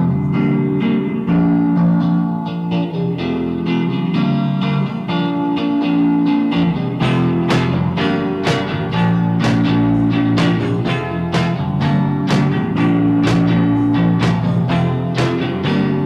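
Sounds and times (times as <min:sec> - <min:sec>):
bass line: 0:00.0 - 0:02.2, 0:06.4 - 0:16.0
plucked guitar notes: 0:00.0 - 0:16.0.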